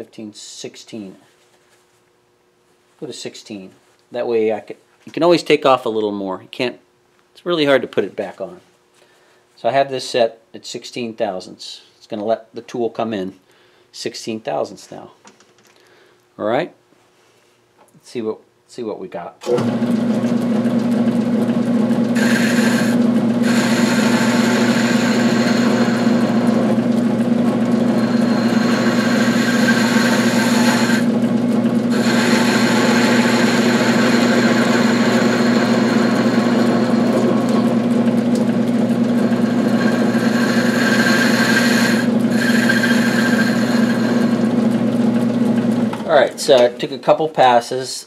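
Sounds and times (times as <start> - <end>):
lathe motor hum: 19.5 - 46.6.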